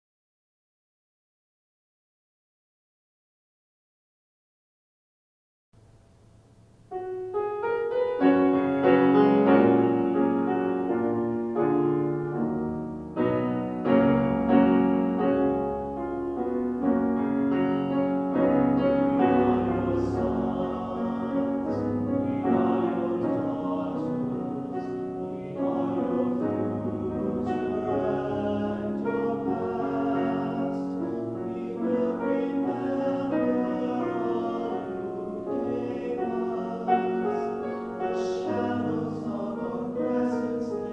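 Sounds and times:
grand piano chords: 5.8 - 40.9
mixed choir singing: 8.2 - 11.9, 17.0 - 40.9.

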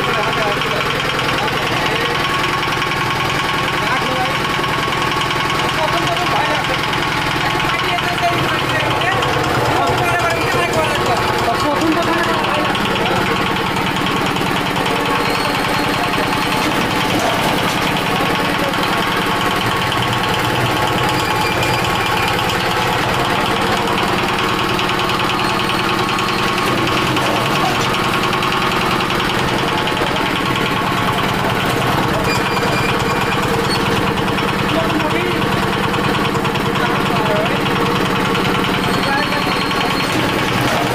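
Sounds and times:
small engine running: 0.0 - 40.9.

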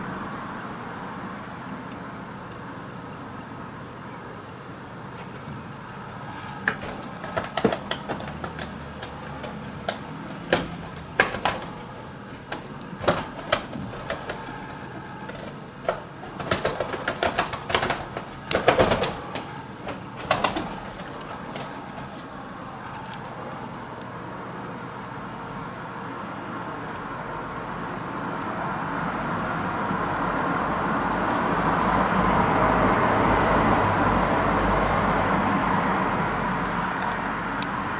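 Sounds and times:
pigeon wings slapping: 6.5 - 22.4.

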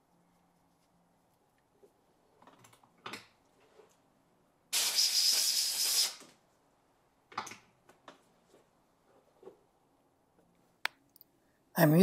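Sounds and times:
compressed air blast: 4.7 - 6.2.

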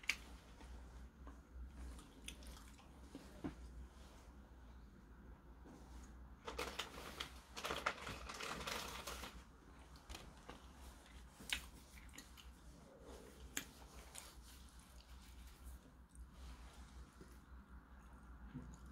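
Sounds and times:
tissue paper rustling and crinkling: 6.4 - 11.1.

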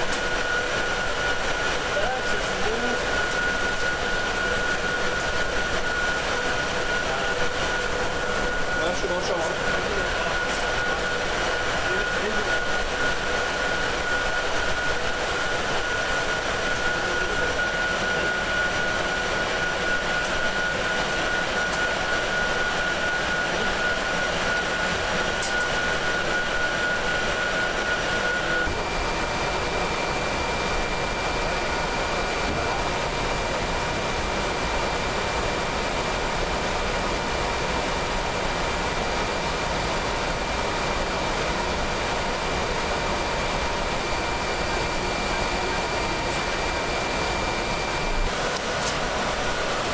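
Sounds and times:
machinery hum and hiss: 44.0 - 49.9.

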